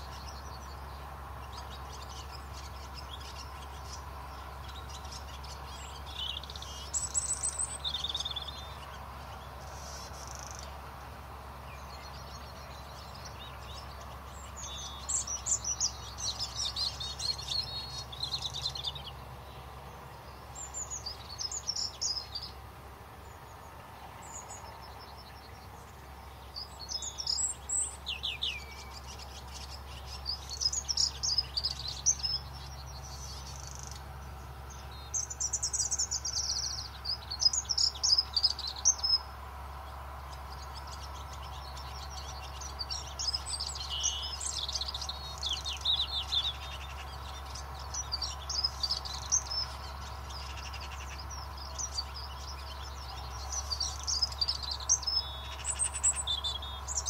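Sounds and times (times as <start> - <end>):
low background hum: 0.0 - 57.0
small birds chirping: 0.0 - 57.0.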